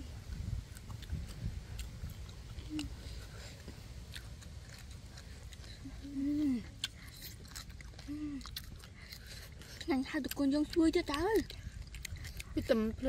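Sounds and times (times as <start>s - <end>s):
crunchy chewing: 0.0s - 13.0s
person humming mm: 2.6s - 3.2s, 5.8s - 6.9s.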